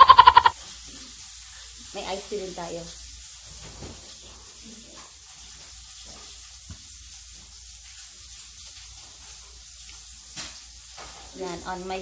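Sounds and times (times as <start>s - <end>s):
food sizzling in a pan: 0.0s - 12.0s.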